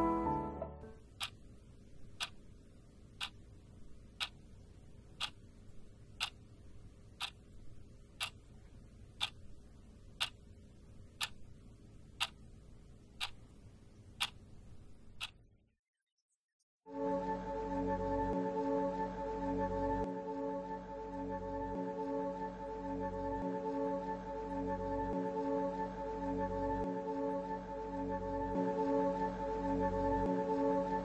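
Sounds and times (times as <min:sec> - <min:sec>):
wall clock ticking: 0:01.1 - 0:02.5, 0:03.1 - 0:03.5, 0:04.2 - 0:04.5, 0:05.1 - 0:05.5, 0:06.1 - 0:06.5, 0:07.1 - 0:09.5, 0:10.1 - 0:10.4, 0:11.0 - 0:11.6, 0:12.2 - 0:12.5, 0:13.1 - 0:14.5, 0:15.1 - 0:15.4.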